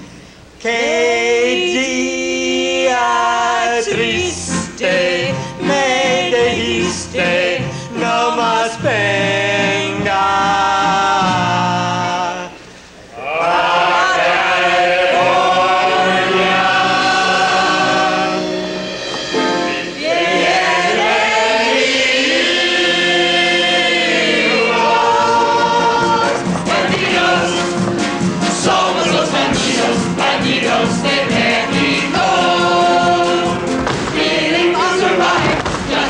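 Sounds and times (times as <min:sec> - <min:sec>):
mixed chorus singing: 0:00.6 - 0:36.0.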